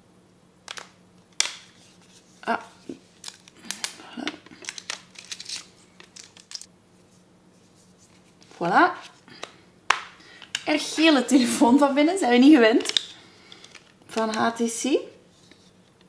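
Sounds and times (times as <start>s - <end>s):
thin sheet crinkling: 0.7s - 9.3s.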